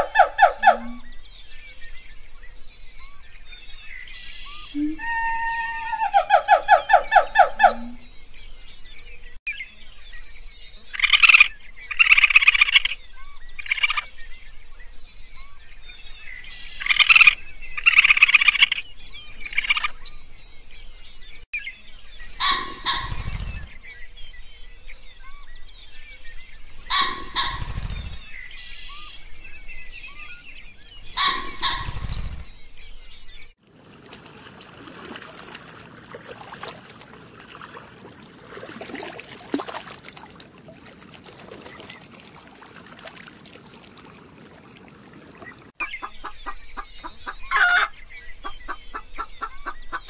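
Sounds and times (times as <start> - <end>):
faint bird chirping: 0.0 - 33.6
harsh bird chattering: 31.2 - 32.4.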